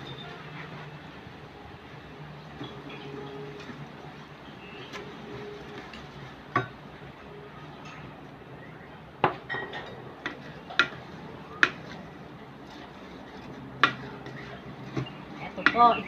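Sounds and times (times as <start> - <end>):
spatula stirring rice in pot: 10.2 - 16.0.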